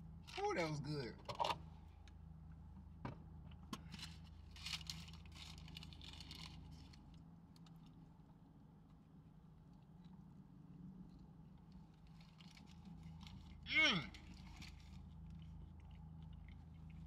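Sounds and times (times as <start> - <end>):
low steady hum: 0.0 - 17.0
paper wrapping crinkling: 4.5 - 7.0.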